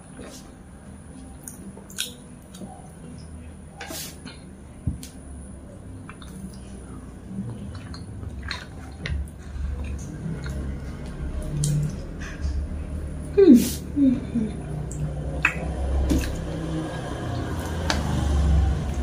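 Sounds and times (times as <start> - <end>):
wet chewing and mouth smacks: 1.4 - 3.4, 6.0 - 6.8, 7.4 - 12.6, 14.8 - 16.6.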